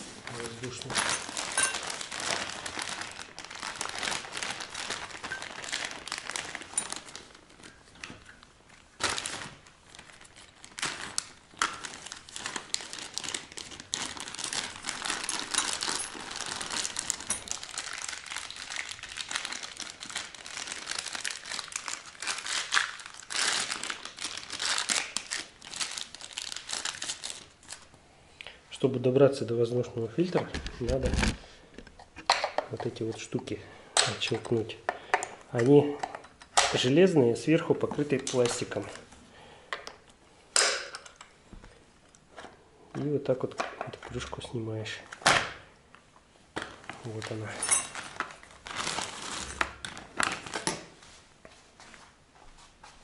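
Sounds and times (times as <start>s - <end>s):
plastic bag crinkling: 0.0s - 27.9s, 30.2s - 31.5s, 46.6s - 51.0s.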